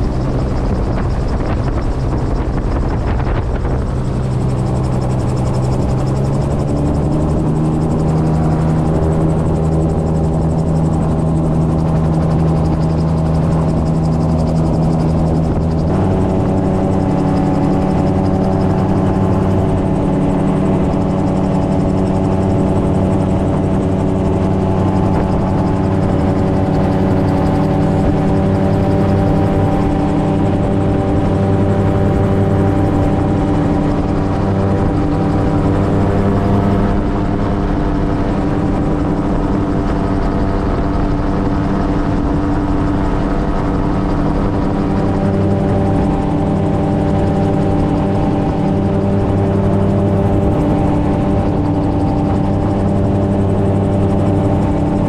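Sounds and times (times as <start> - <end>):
gyrocopter engine and propeller drone: 0.0 - 55.0.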